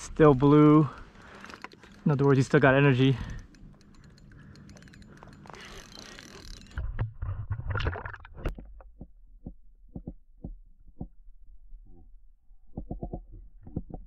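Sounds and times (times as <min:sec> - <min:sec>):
low hum: 0:00.0 - 0:14.0
sharp underwater clicks and knocks: 0:01.2 - 0:11.2, 0:12.6 - 0:14.0
muffled underwater rumble with thuds: 0:06.8 - 0:14.0.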